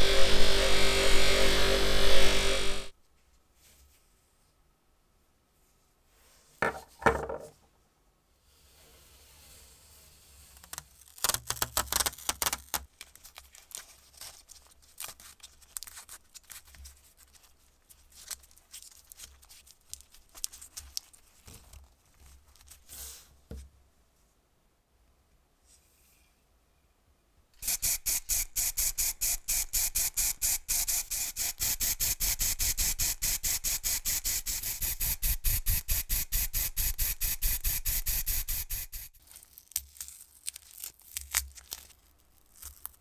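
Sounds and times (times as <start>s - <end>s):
masking tape crinkling: 10.6s - 22.9s, 36.7s - 43.0s.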